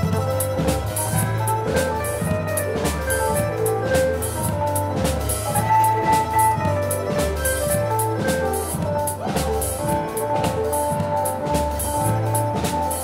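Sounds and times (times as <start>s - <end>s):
live dance band playing: 0.0s - 13.0s
steady drum beat: 0.0s - 13.0s.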